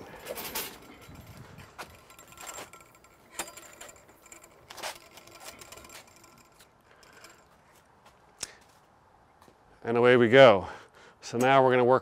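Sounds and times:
grill wheels clicking on pavers: 0.0 - 8.0.

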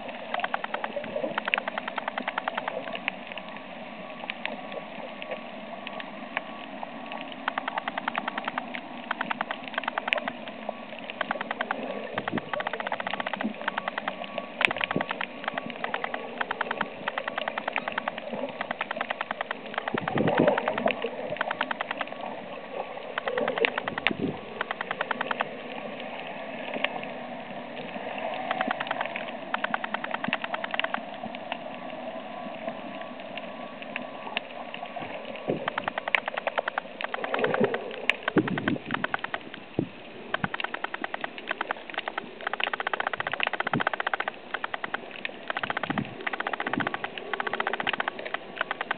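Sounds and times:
snapping shrimp crackle: 0.3 - 2.9, 7.4 - 22.2, 23.1 - 25.5, 28.4 - 31.0, 35.6 - 39.6, 40.4 - 48.9.

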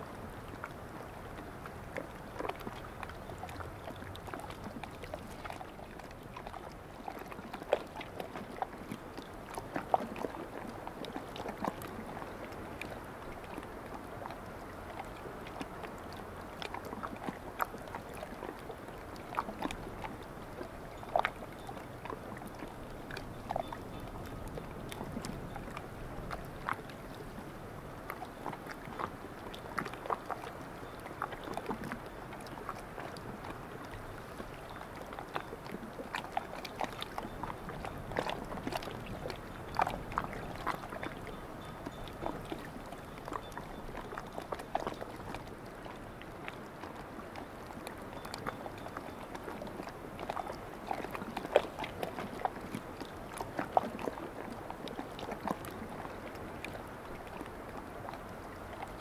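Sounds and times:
small waves lapping at shore: 0.0 - 59.0.

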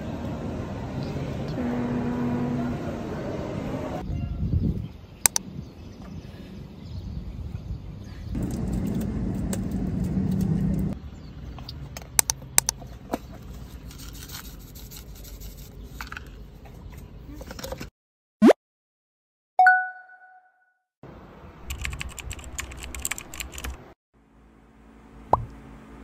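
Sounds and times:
sharp clicks: 5.2 - 5.4, 21.6 - 23.8.

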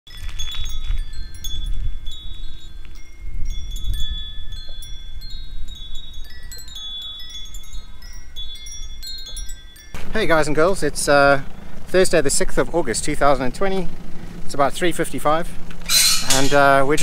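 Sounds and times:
metal wind chimes ringing: 0.1 - 11.6, 15.9 - 17.0.

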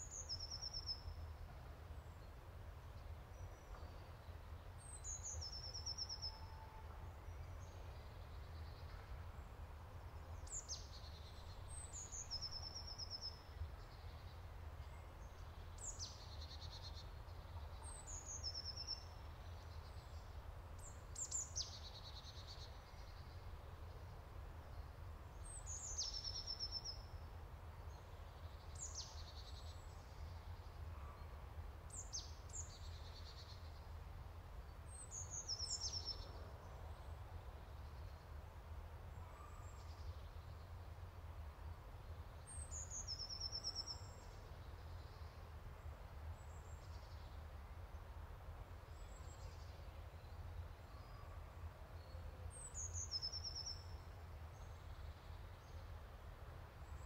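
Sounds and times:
songbird singing with trill: 0.0 - 1.2, 3.0 - 9.5, 10.3 - 27.3, 27.9 - 31.2, 31.9 - 33.9, 34.8 - 37.1, 42.4 - 45.4, 48.9 - 55.9.

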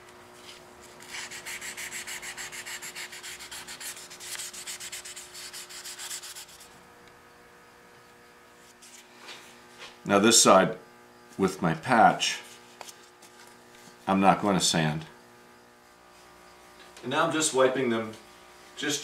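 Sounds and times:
sandpaper rubbing on wood: 1.0 - 6.8.

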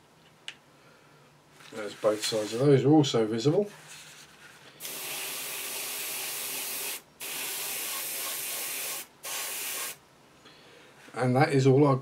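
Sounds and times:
airbrush spraying hiss: 4.8 - 10.0.

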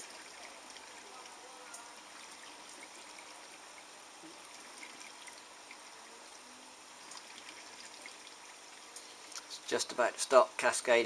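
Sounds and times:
water trickling into dishwasher: 0.0 - 10.0.

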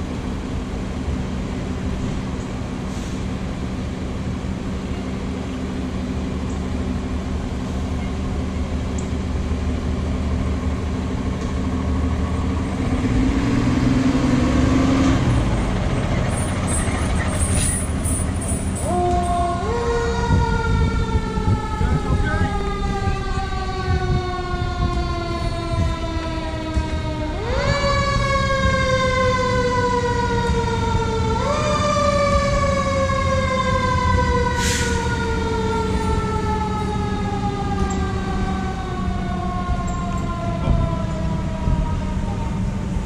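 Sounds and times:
truck engine rumble: 0.0 - 43.0
mechanical siren wailing: 17.4 - 43.0.

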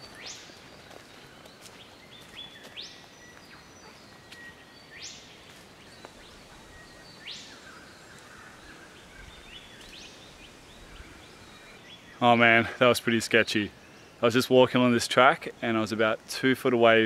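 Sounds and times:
bird calling: 0.0 - 14.3.

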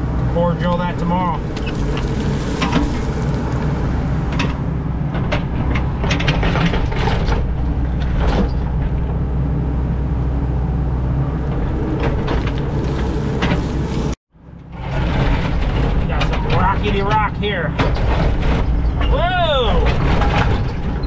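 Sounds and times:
excavator diesel engine running: 0.0 - 21.0
bucket clanking and scraping on rocks: 1.4 - 3.8, 14.8 - 18.9.

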